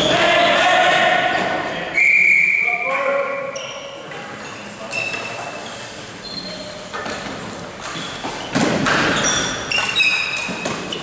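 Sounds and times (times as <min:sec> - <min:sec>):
short high squeaks: 0:03.5 - 0:06.9, 0:07.9 - 0:11.0
hockey sticks and ball knocking: 0:06.9 - 0:11.0.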